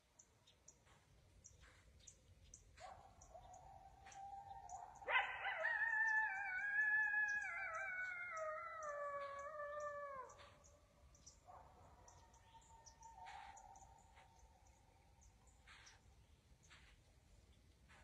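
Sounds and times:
coyote howling: 0:03.5 - 0:10.7.

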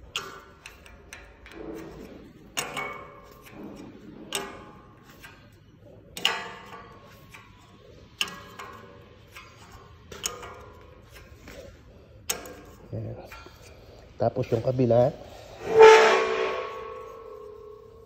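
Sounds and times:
metal tapping on steel: 0:00.0 - 0:14.6.

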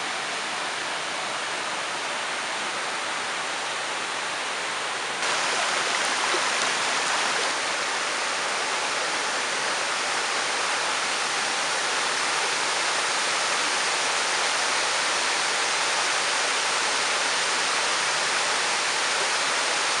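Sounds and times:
river water rushing over stones: 0:05.0 - 0:20.0.

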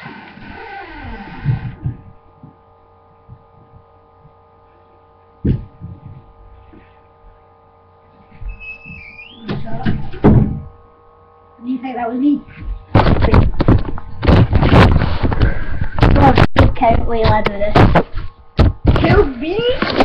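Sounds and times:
electrical hum: 0:00.0 - 0:20.0
door knocked and opened: 0:09.4 - 0:10.7.

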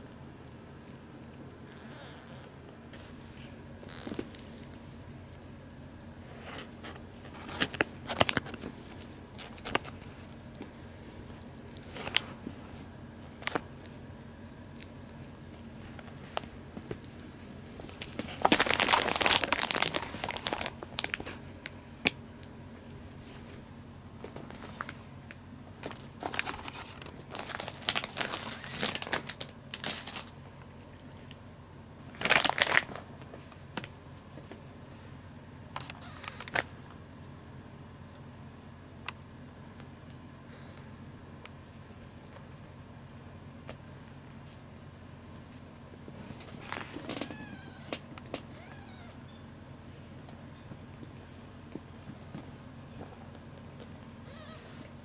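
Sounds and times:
tissue crackles and rustles: 0:06.3 - 0:22.0, 0:23.1 - 0:30.4, 0:32.1 - 0:33.6
crinkly rustling of quilted pad: 0:17.8 - 0:21.8, 0:25.9 - 0:30.4, 0:32.1 - 0:33.5.

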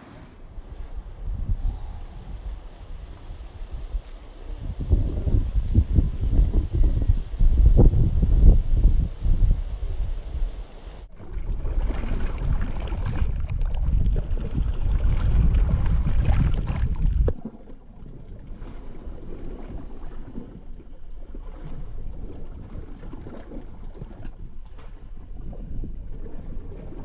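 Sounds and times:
wind noise on microphone: 0:00.0 - 0:27.0
feet splashing through shallow water: 0:11.1 - 0:27.0.

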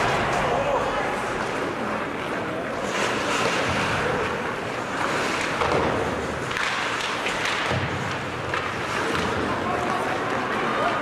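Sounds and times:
skates cutting ice: 0:02.8 - 0:11.0.

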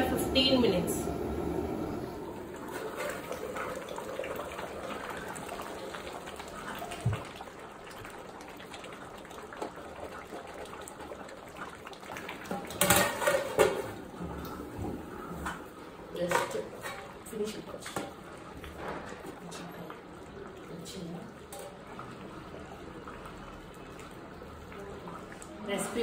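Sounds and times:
curry bubbling in a pot: 0:01.6 - 0:26.0.

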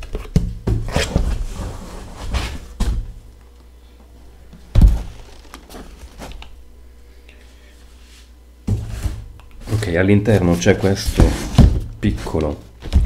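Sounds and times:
cardboard rustling and scraping: 0:00.8 - 0:02.9, 0:04.8 - 0:06.4, 0:07.9 - 0:13.0.

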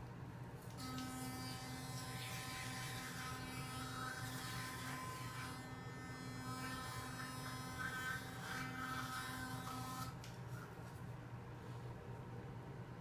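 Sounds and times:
electric toothbrush buzzing: 0:00.7 - 0:10.2.

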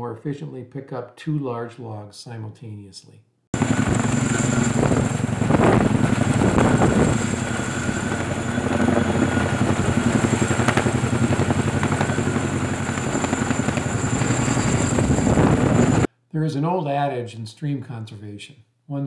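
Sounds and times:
helicopter rotor beat: 0:03.6 - 0:16.1
high turbine whine: 0:03.6 - 0:16.1.

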